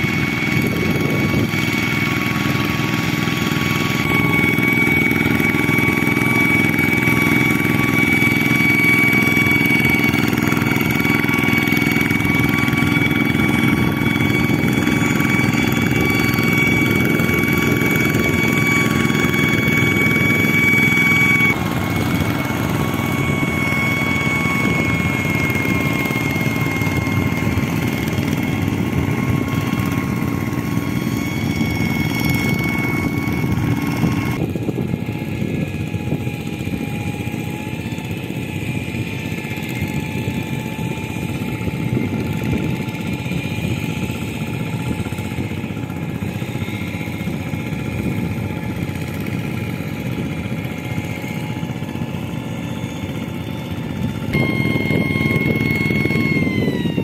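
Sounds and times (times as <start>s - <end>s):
diesel engine running: 0.0s - 57.0s
steady high whine: 0.0s - 57.0s.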